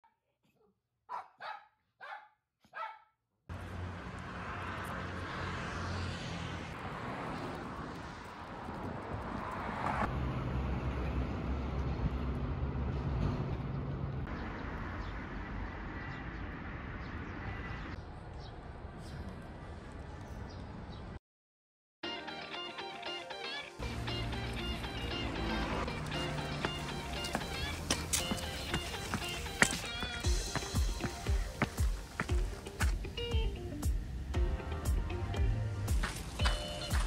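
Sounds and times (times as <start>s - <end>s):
dog barking: 1.1s - 3.2s
road traffic: 3.5s - 21.2s, 22.3s - 37.0s.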